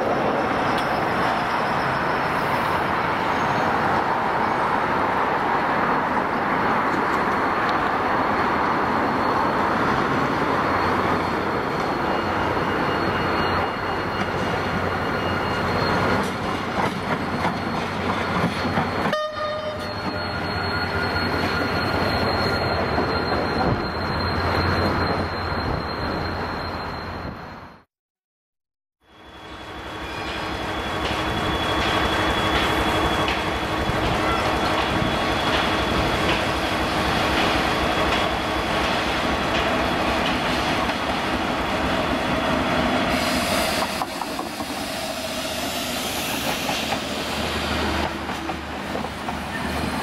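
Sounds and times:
wheels on rail: 0:00.0 - 0:27.7, 0:29.2 - 0:50.0.

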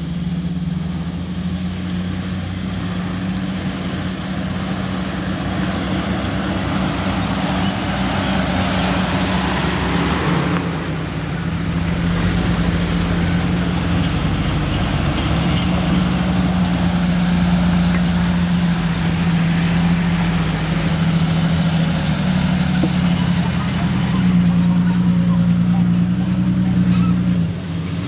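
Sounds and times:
off-road vehicles driving slowly: 0:00.0 - 0:28.0.

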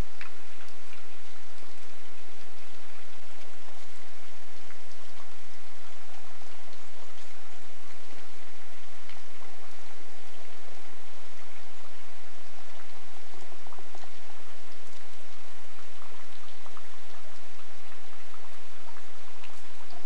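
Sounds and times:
raindrop ticks: 0:00.0 - 0:20.0
steady rain falling: 0:00.0 - 0:20.0.

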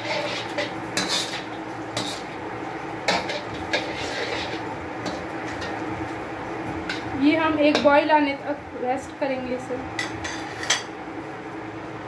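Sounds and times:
metal spatula scraping wok: 0:00.0 - 0:02.4, 0:03.1 - 0:05.8, 0:10.0 - 0:10.9.

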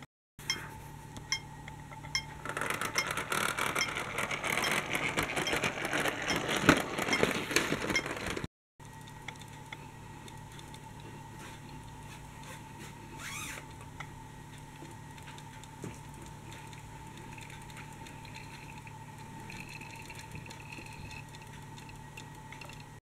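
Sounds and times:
toy vehicle clicking rattle: 0:02.4 - 0:08.5.

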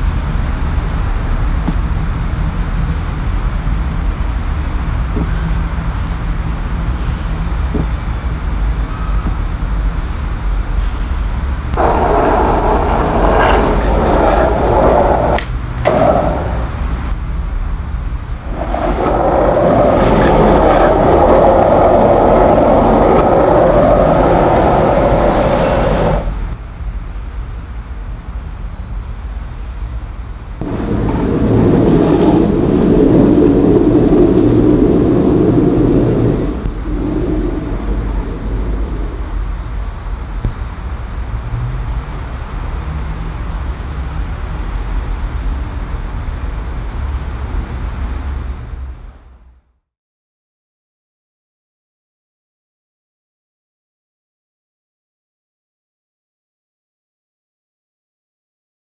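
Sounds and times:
skateboard wheels rolling on concrete: 0:00.0 - 0:26.8, 0:30.0 - 0:49.4
steady low hum: 0:11.3 - 0:28.0, 0:30.0 - 0:41.5.

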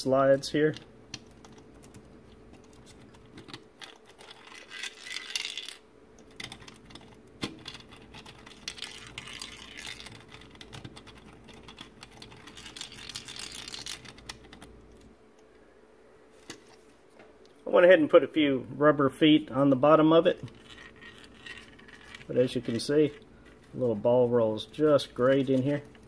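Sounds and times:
metal ball rattling down plastic track: 0:03.8 - 0:05.8, 0:07.5 - 0:10.7, 0:20.4 - 0:22.9.

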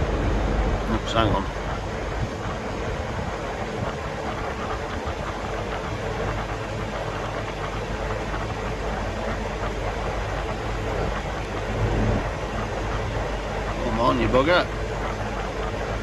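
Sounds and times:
heat pump humming and rushing: 0:00.0 - 0:16.0.

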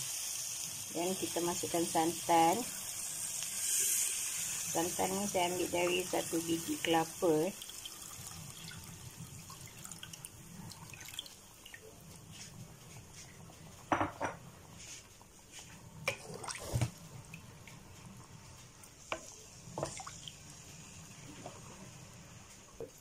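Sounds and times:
liquid pouring into a pan: 0:07.5 - 0:11.9.

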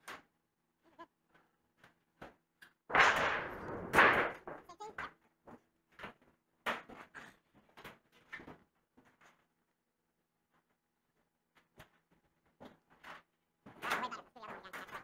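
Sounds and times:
sheet metal flexing and rumbling: 0:02.9 - 0:04.6.

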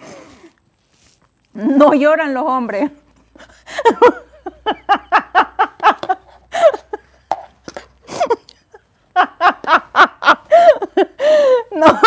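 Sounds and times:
woman laughing heartily: 0:03.2 - 0:12.0.

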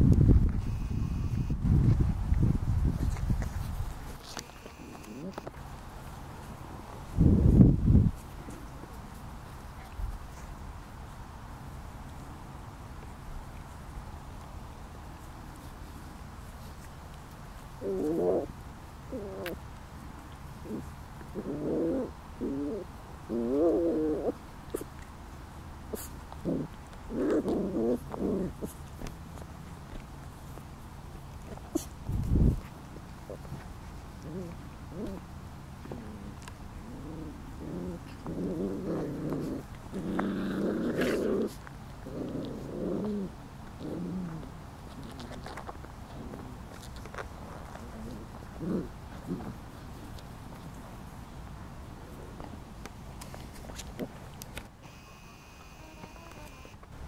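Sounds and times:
puppies growling: 0:17.8 - 0:18.5, 0:19.1 - 0:19.6, 0:20.6 - 0:24.9, 0:25.9 - 0:29.1, 0:33.1 - 0:50.2.

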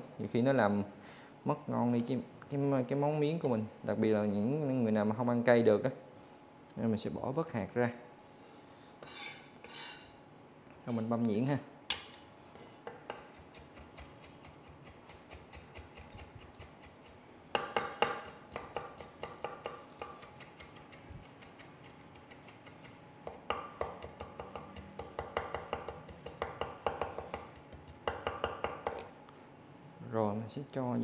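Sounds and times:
knife chopping on wooden board: 0:12.9 - 0:29.1.

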